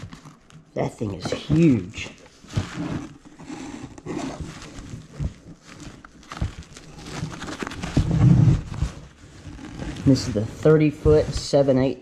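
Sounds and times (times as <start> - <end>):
rope rustling in cardboard box: 0.0 - 11.7.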